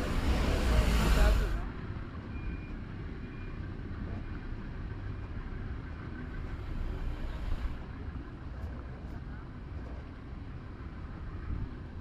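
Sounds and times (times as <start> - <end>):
vehicle passing: 0.0 - 1.7
road traffic rumble: 0.0 - 12.0.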